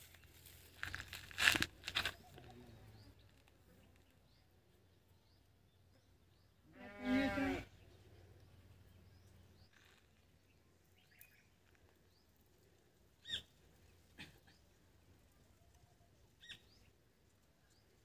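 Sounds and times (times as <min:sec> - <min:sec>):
farm animal bleat: 0:06.6 - 0:07.8
bird chirps: 0:13.2 - 0:13.6, 0:15.6 - 0:17.0.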